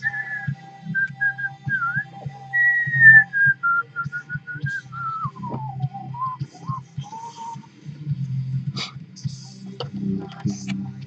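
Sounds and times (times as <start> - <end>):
person whistling a tune: 0.0 - 7.6.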